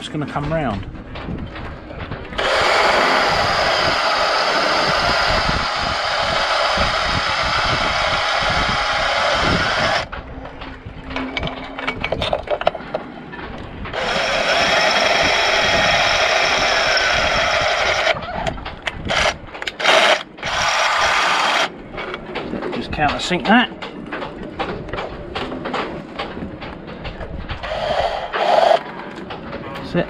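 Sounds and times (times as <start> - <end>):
cordless drill boring: 2.4 - 10.1, 13.9 - 18.2, 19.1 - 21.7.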